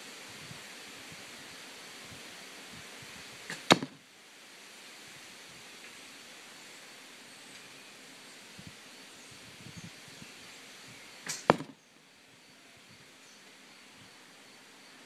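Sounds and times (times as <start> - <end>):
arrow striking target: 3.5 - 4.0, 11.2 - 11.8
bowstring release: 3.5 - 4.0, 11.2 - 11.8.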